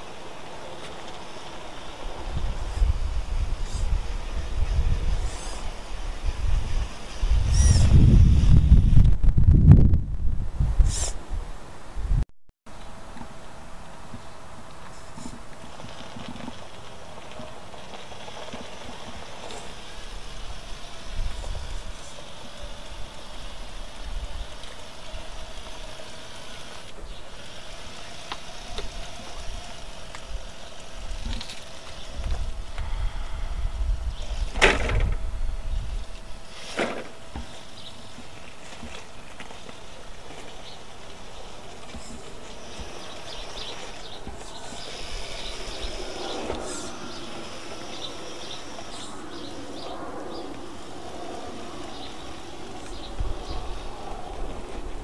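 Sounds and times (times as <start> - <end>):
wind rumbling on microphone: 0.0 - 12.2, 14.0 - 55.0
toy car motor whirring: 0.9 - 9.2, 15.0 - 32.9, 35.9 - 49.3.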